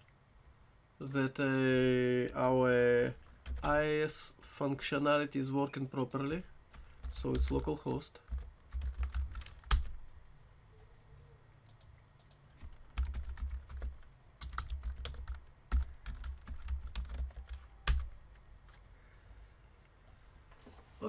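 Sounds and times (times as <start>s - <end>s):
typing on computer keyboard: 8.3s - 10.1s, 11.7s - 18.1s.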